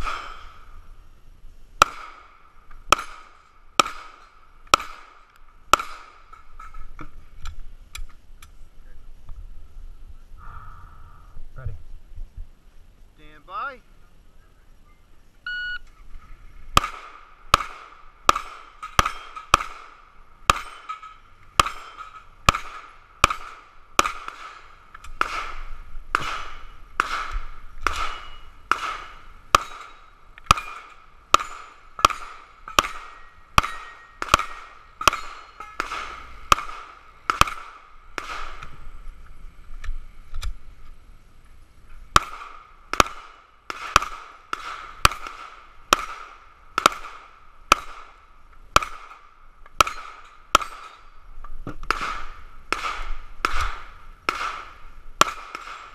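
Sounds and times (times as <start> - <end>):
rapid pistol fire: 1.8 - 6.2, 16.8 - 20.8, 21.6 - 29.9, 30.5 - 38.6, 42.2 - 48.2, 51.9 - 55.9
shot timer beep: 15.5 - 15.8
steel plate ringing: 35.0 - 35.9.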